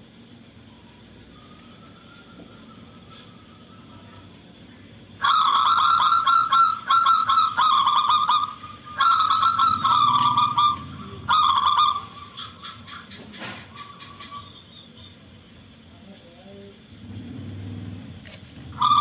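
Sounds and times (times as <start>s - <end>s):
dove singing high cooing notes: 0.6s - 15.7s, 17.0s - 19.0s.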